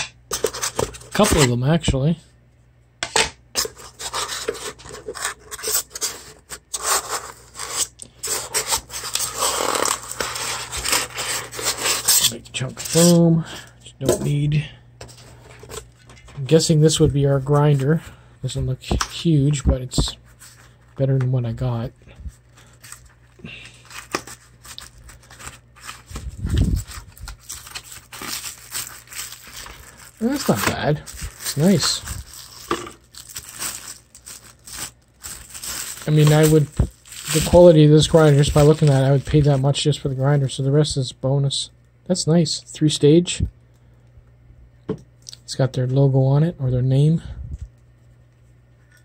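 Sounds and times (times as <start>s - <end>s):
plastic crinkling: 22.4s - 39.8s.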